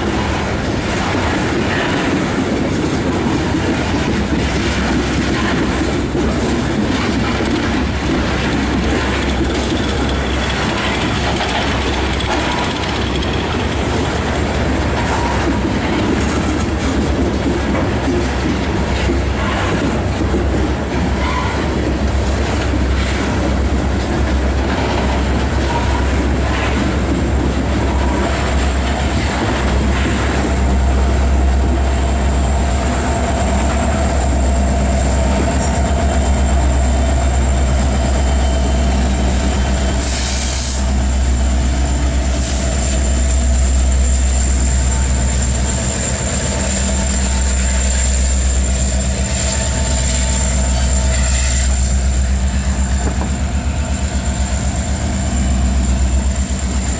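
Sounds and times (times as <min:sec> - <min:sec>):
locomotive engine drone: 0:00.0 - 0:56.9
train wheels clicking over rail joints: 0:00.0 - 0:56.9
heavy low rumble: 0:26.2 - 0:51.2.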